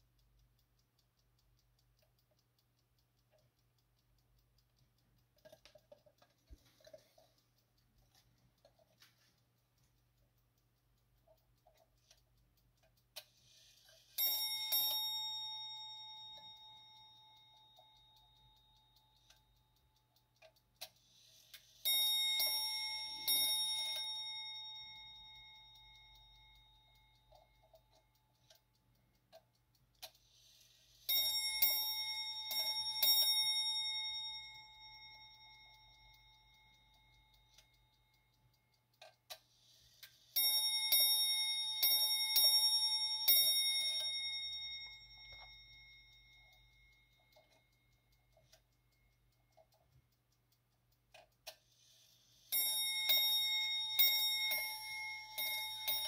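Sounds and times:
clock mechanism whirr: 0:00.0 - 0:56.0
faint clock clicks: 0:00.0 - 0:56.0
clock bell strikes: 0:14.2 - 0:17.1, 0:21.9 - 0:26.0, 0:31.1 - 0:36.0, 0:40.4 - 0:46.0, 0:52.5 - 0:56.0.

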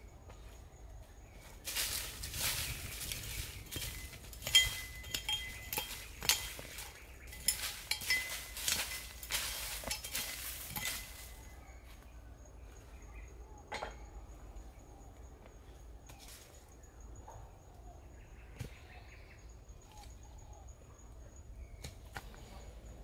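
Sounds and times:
hard objects clinking and knocking: 0:02.6 - 0:11.5.

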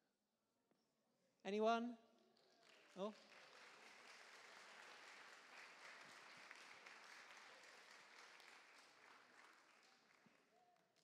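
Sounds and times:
faint audience applause: 0:02.2 - 0:11.0.

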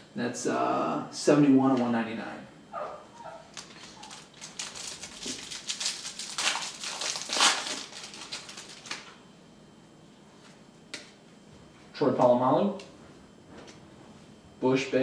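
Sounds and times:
plastic wrapping crinkling: 0:03.4 - 0:09.2.

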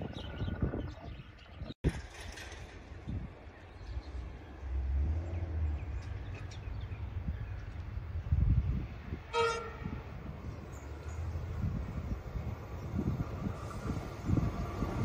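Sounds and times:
low train rumble: 0:00.0 - 0:15.0
train horn blast: 0:09.3 - 0:10.3.

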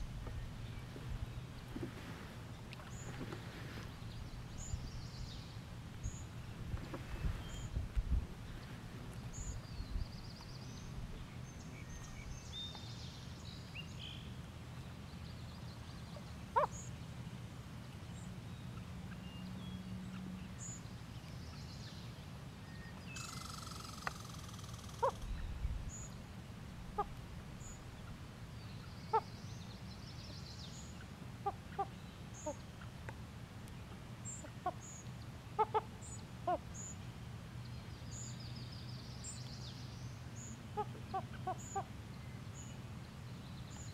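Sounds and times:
loons calling softly: 0:23.2 - 0:26.1.

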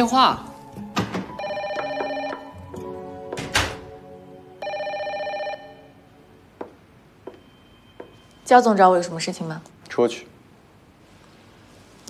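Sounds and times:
telephone ringing: 0:01.3 - 0:02.9, 0:04.6 - 0:06.0.

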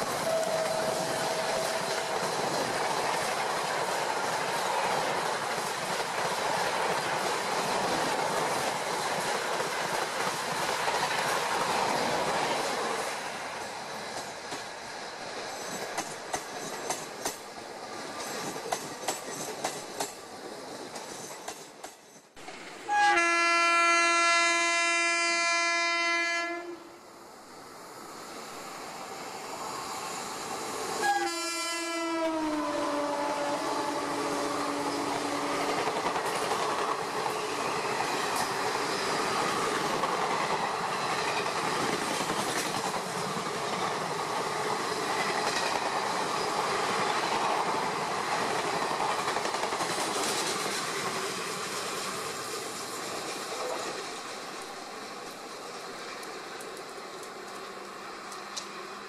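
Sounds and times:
train wheels clicking over rails: 0:00.0 - 0:23.0, 0:33.4 - 0:59.0
locomotive horn blast: 0:00.1 - 0:02.1, 0:22.9 - 0:26.9, 0:31.0 - 0:35.6.

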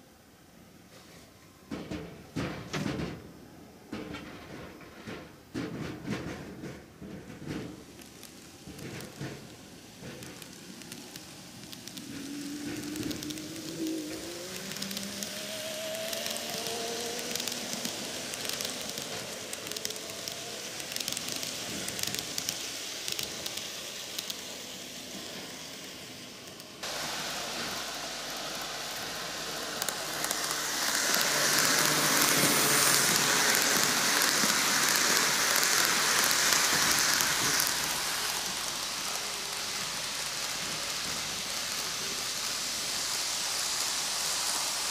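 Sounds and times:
model train wheels rattling: 0:04.0 - 0:44.9
faint motor whine: 0:06.6 - 0:44.9.

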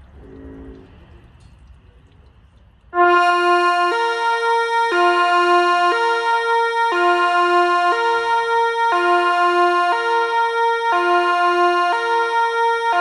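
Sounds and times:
two-tone fire siren: 0:03.0 - 0:13.0.

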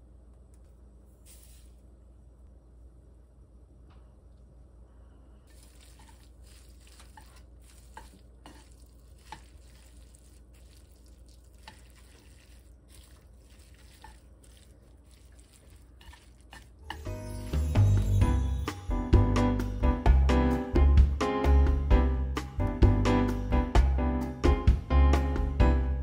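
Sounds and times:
soft stirring in a frying pan: 0:05.5 - 0:17.2.

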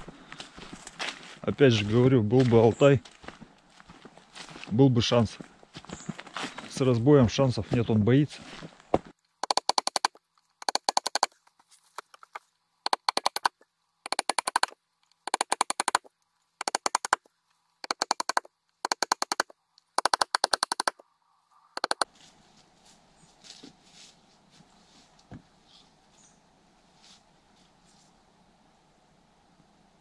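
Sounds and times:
rapid mechanical clicking: 0:09.4 - 0:11.4, 0:12.0 - 0:21.0, 0:21.8 - 0:22.0
faint rustle: 0:11.3 - 0:12.6, 0:21.4 - 0:28.6.

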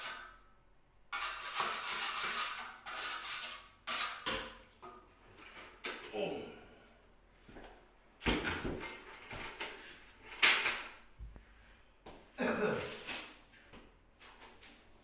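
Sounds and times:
tools and materials bumping and scraping: 0:08.2 - 0:11.4.

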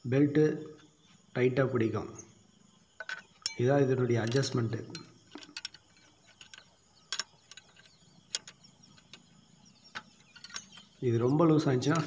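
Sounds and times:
metallic spanner clicks on bolt: 0:03.0 - 0:03.6, 0:04.2 - 0:09.2.

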